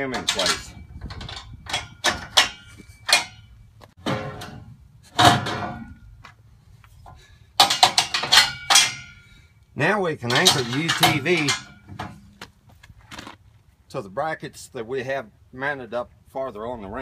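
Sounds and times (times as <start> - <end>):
metal ramps clanking: 0.0 - 6.2, 7.1 - 9.4, 10.2 - 12.4.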